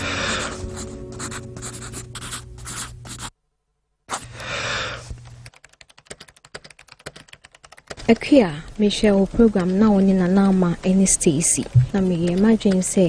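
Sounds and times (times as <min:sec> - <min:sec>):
pen scratching on paper: 0:00.2 - 0:03.3
computer keyboard typing: 0:05.2 - 0:13.0
low steady hum: 0:10.7 - 0:12.3.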